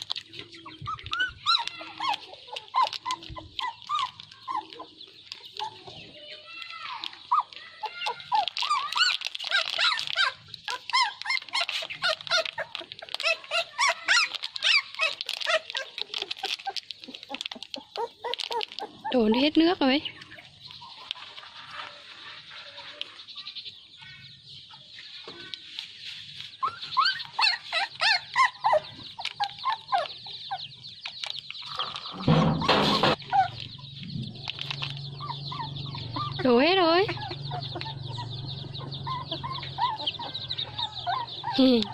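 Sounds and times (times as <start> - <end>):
puppies whining and yelping: 0.0 - 6.4, 7.0 - 19.8, 25.8 - 41.9
chickens calling: 0.0 - 41.9.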